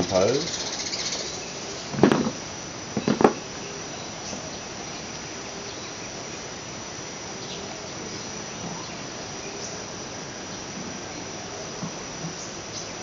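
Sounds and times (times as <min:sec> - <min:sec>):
insects calling: 0:00.0 - 0:13.0
steady background hiss: 0:00.0 - 0:13.0.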